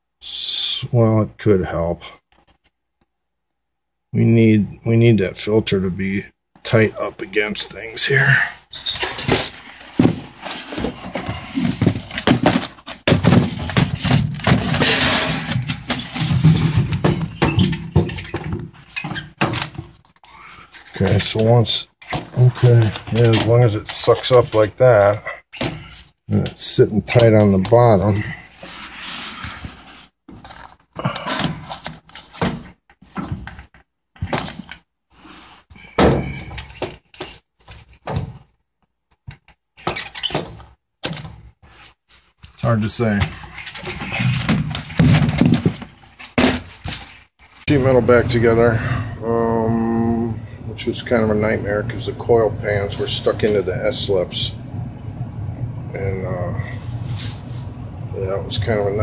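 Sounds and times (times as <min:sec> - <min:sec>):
filter scraping and rustling: 0:08.7 - 0:30.9, 0:41.6 - 0:59.0
air filter knocks and scrapes: 0:09.0 - 0:19.9.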